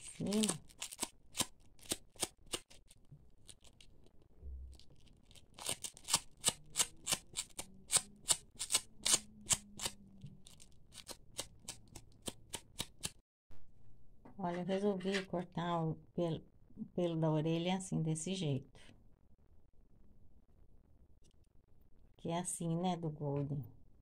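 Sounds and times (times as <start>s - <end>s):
velcro scratching across fur: 4.8s - 13.2s.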